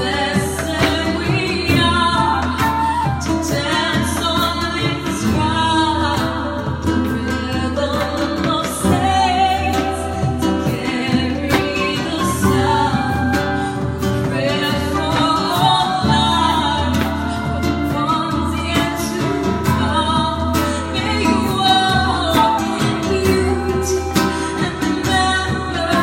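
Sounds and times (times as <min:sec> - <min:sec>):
person singing: 0:00.0 - 0:26.0
strummed acoustic guitar: 0:00.0 - 0:26.0.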